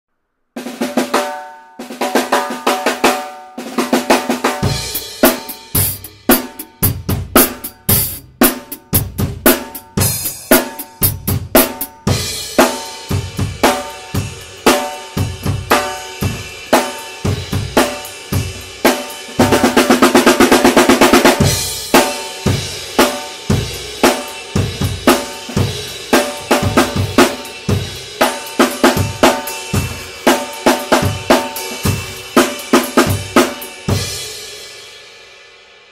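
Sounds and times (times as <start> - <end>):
snare drum roll: 0.6 - 10.9, 18.9 - 22.3
snare drum groove: 0.6 - 34.3.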